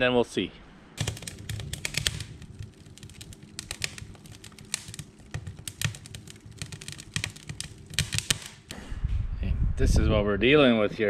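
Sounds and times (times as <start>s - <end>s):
low rumble: 8.7s - 10.5s.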